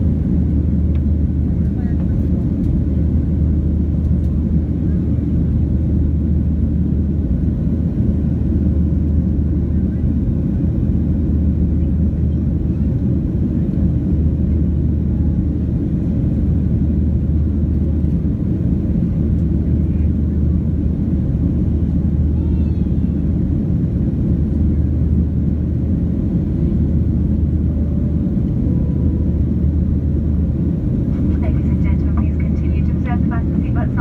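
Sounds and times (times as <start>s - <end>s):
jet engine rumble in cabin: 0.0s - 34.0s.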